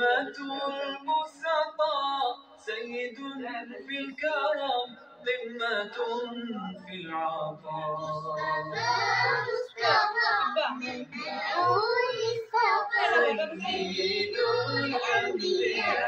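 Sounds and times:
child singing: 0:07.8 - 0:16.0.

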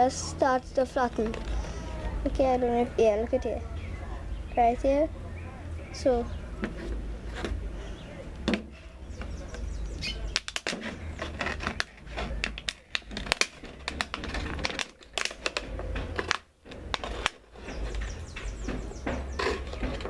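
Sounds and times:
plastic bottle crinkling: 0:01.0 - 0:01.7, 0:10.3 - 0:18.2
knife cutting plastic: 0:10.3 - 0:18.1.

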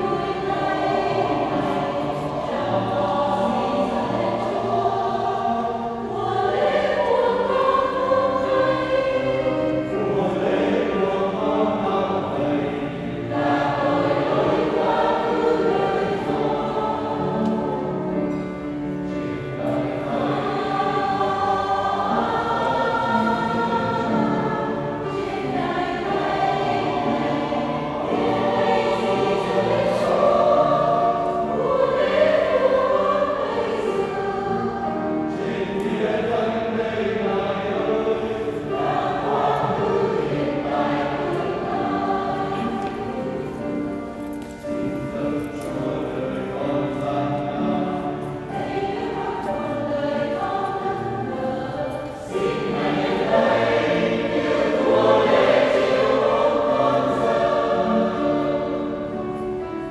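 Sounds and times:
choir singing a hymn: 0:00.0 - 0:59.9.

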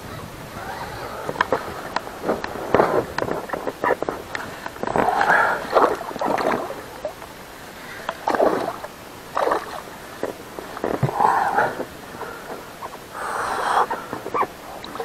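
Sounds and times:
fish thrashing and splashing: 0:01.1 - 0:07.2, 0:08.0 - 0:12.7.

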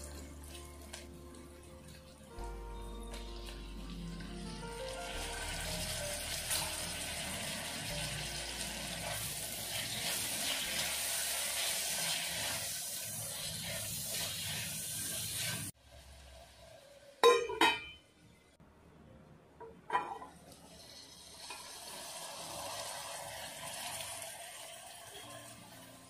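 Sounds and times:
vegetables sizzling in hot oil: 0:03.1 - 0:17.2, 0:20.6 - 0:26.0.

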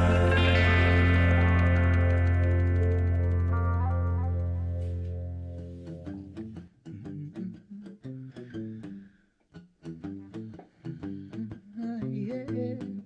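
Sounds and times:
acoustic guitars playing: 0:00.0 - 0:08.9.

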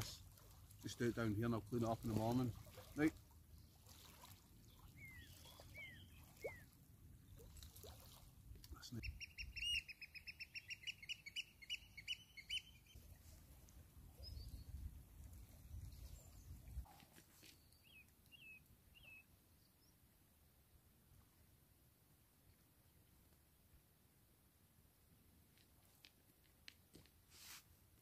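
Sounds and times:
birds calling: 0:04.6 - 0:07.5, 0:09.0 - 0:13.0.

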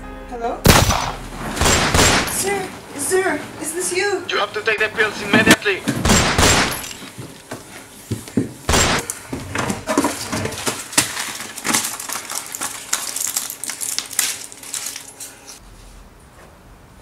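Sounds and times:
pill packet clicks and rustles: 0:11.1 - 0:15.2.

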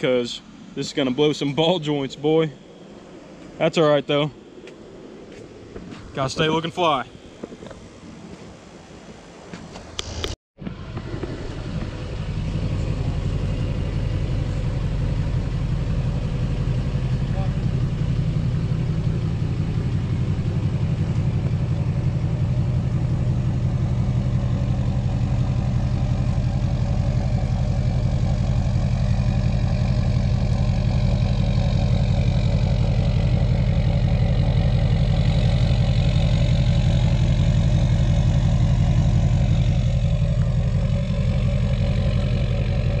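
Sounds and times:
diesel engine idling: 0:10.0 - 0:43.0.

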